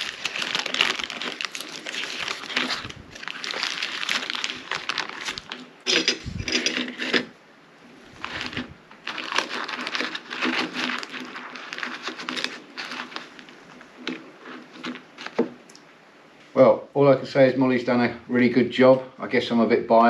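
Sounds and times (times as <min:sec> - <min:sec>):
knife scraping on cracker: 0:00.0 - 0:07.3, 0:08.2 - 0:15.4
parchment paper crinkling: 0:00.0 - 0:07.3, 0:08.1 - 0:15.7.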